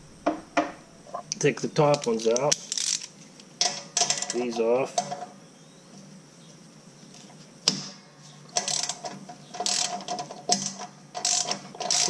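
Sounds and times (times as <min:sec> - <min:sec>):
socket ratchet wrench clicking: 0:01.9 - 0:03.2, 0:08.6 - 0:09.0, 0:09.6 - 0:12.0.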